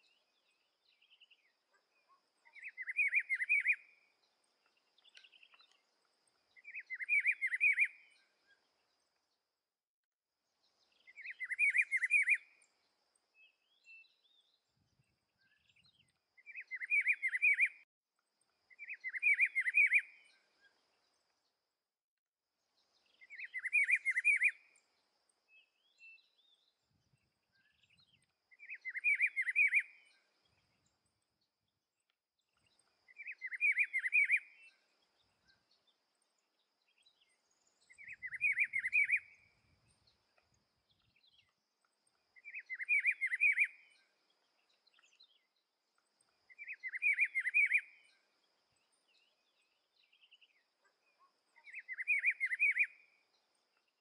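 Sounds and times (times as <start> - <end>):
bird singing warbled phrase: 28.6 - 30.1, 37.8 - 39.4, 42.4 - 44.0, 49.2 - 53.0.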